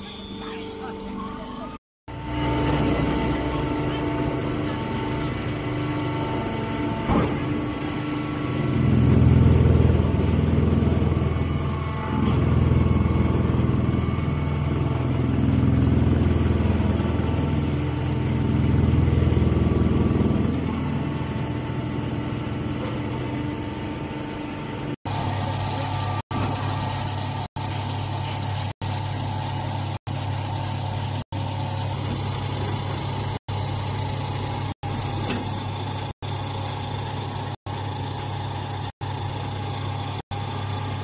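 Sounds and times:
baler motor hum: 0.7 - 41.0.

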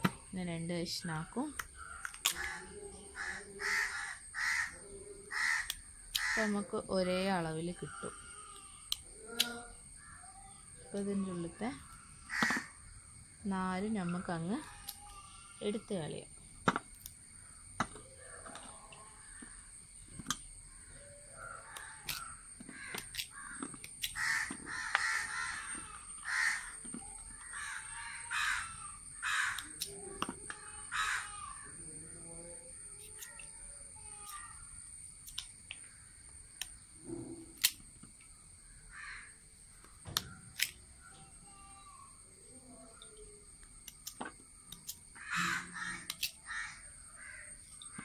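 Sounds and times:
crows cawing: 1.8 - 6.5, 9.9 - 10.3, 11.8 - 12.9, 20.7 - 29.8, 30.5 - 31.8, 38.7 - 39.4, 45.1 - 48.0.

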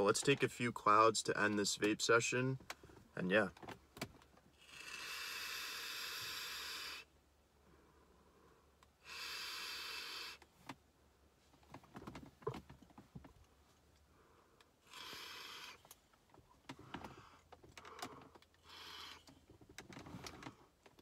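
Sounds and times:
vape airy hiss: 4.7 - 7.1, 9.0 - 10.4
person exhaling vapour: 9.0 - 10.4.

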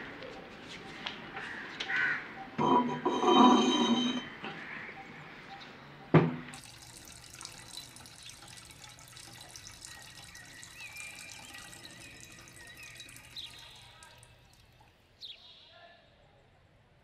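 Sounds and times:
glass jar knocking on floor: 2.6 - 4.3
water fizzing with bubbles: 6.6 - 15.1.

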